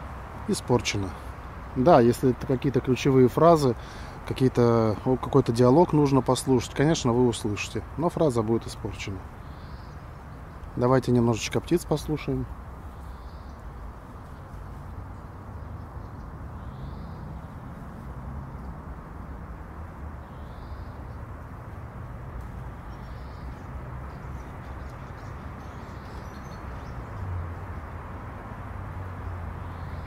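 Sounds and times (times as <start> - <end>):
distant road traffic: 0.0 - 30.0
faint bird chirps: 9.2 - 10.6, 12.2 - 17.6, 20.2 - 21.2, 22.8 - 27.3.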